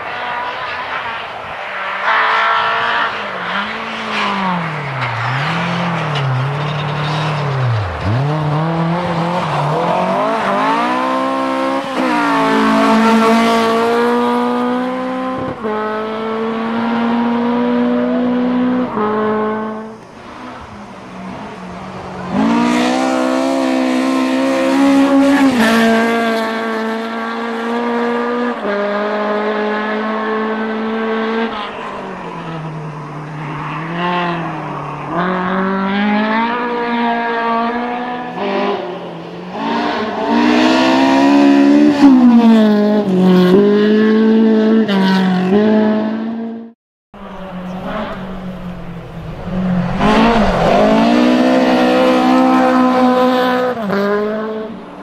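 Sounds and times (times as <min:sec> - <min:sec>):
car engine revving hard: 0:07.7 - 0:19.9, 0:47.7 - 0:54.8.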